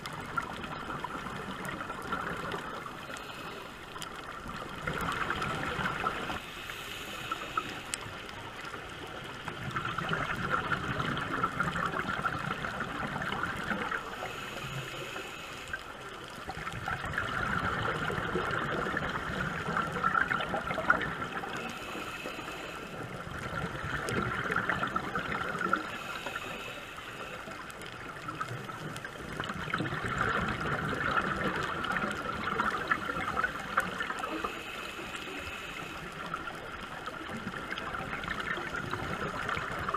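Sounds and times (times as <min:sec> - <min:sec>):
bubbles gurgling underwater: 0:00.0 - 0:03.0, 0:04.2 - 0:06.4, 0:08.3 - 0:14.0, 0:16.3 - 0:21.7, 0:23.0 - 0:26.0, 0:28.0 - 0:34.5, 0:36.1 - 0:39.9
diver breathing through regulator: 0:03.0 - 0:04.0, 0:06.4 - 0:08.2, 0:14.1 - 0:16.0, 0:21.5 - 0:23.1, 0:25.8 - 0:27.7, 0:34.3 - 0:36.4.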